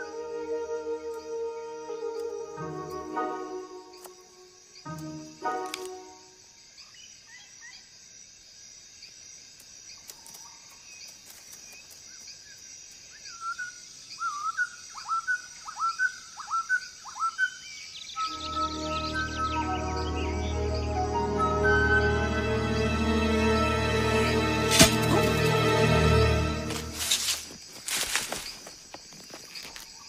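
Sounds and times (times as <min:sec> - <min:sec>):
bird chirps: 0:11.7 - 0:21.9.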